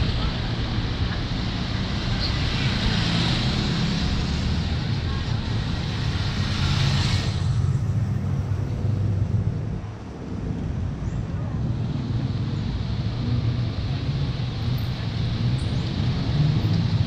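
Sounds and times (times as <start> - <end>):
passersby talking: 0.0 - 6.6
road traffic rumble: 0.0 - 17.0.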